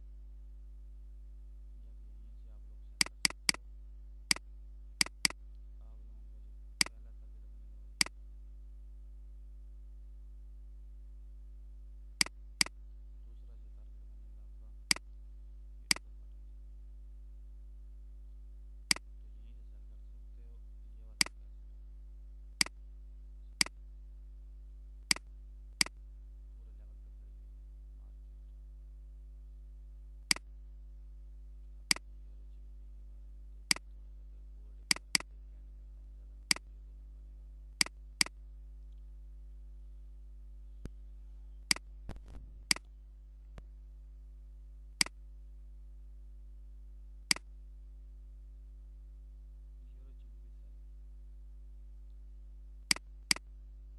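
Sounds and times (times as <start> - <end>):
low electrical hum: 0.0 - 53.9
computer mouse clicks: 5.0 - 5.4, 34.9 - 35.3.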